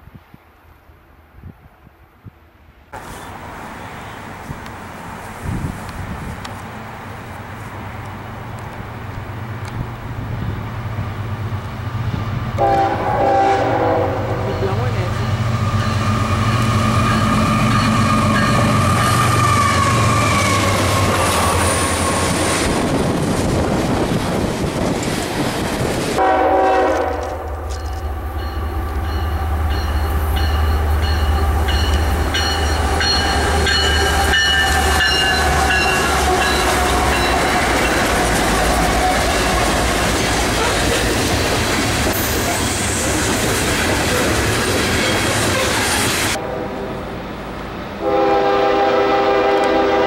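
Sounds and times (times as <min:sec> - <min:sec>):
diesel locomotive engine rumble: 0:03.0 - 0:50.0
train horn: 0:12.6 - 0:15.1, 0:26.2 - 0:27.7, 0:46.3 - 0:47.1, 0:48.0 - 0:50.0
wheels on rails: 0:14.6 - 0:26.2.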